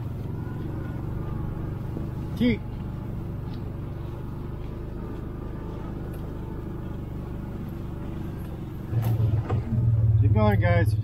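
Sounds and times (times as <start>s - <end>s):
atv engine running: 0.0s - 11.0s.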